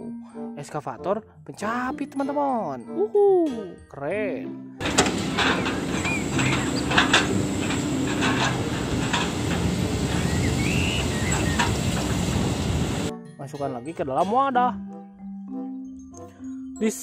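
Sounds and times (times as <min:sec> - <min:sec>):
logs knocking and clattering: 0:04.8 - 0:12.3
high squeak: 0:04.8 - 0:12.8
excavator diesel engine running: 0:04.8 - 0:13.1.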